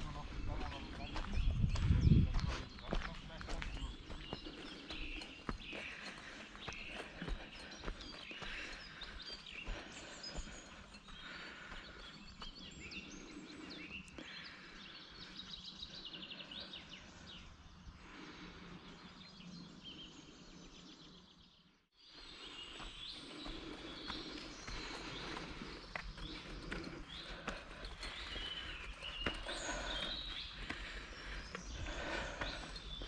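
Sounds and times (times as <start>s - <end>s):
footsteps on a path: 0.0s - 14.8s, 22.1s - 33.0s
songbirds singing: 0.0s - 33.0s.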